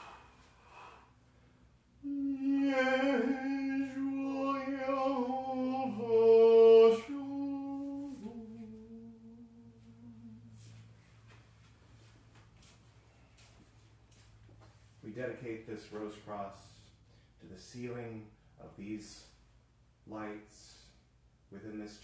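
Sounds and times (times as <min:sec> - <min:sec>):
person chanting in long notes: 0:02.0 - 0:10.6.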